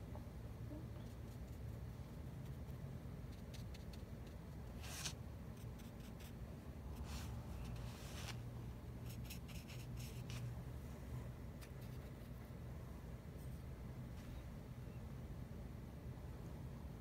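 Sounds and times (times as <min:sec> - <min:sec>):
low steady hum: 0:00.0 - 0:17.0
drawing tool scratching on paper: 0:03.3 - 0:10.4.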